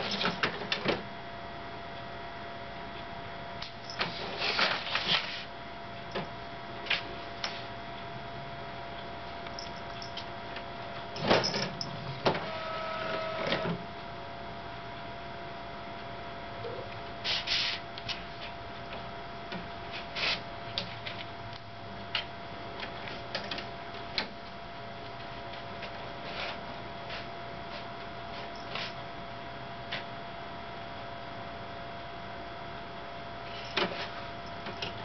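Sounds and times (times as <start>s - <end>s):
fax printer humming: 10.8s - 13.9s.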